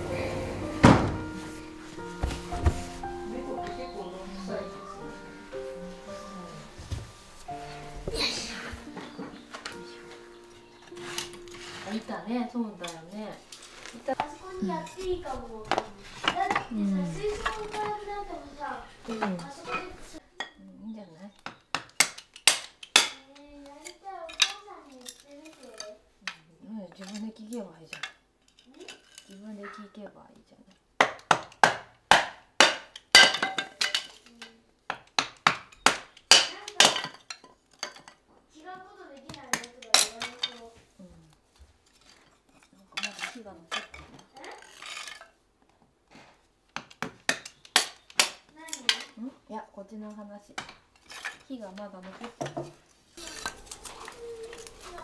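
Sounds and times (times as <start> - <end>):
hatchet splitting kindling: 21.4 - 23.3.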